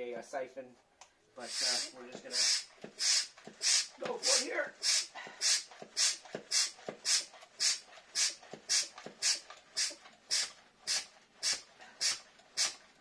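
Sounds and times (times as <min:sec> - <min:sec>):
hand pump hissing air: 0:01.4 - 0:13.0
soft pump knock: 0:05.4 - 0:07.3, 0:08.2 - 0:10.5.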